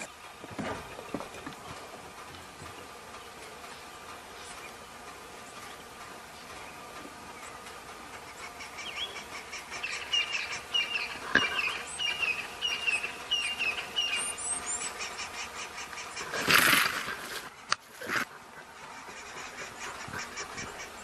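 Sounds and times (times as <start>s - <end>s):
bird chirping: 0.0s - 21.0s
loud rustling: 15.4s - 20.9s.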